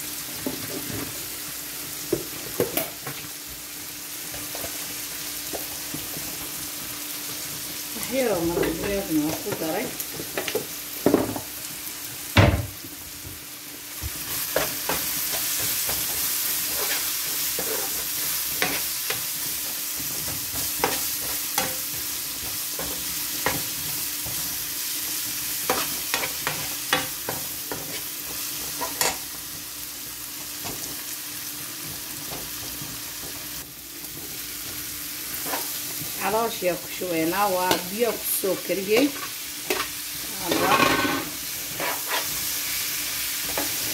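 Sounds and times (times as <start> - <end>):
onions sizzling in frying pan: 0.0 - 43.9
spatula scraping pan: 14.3 - 24.7, 25.5 - 29.3, 34.1 - 36.1, 37.4 - 43.9.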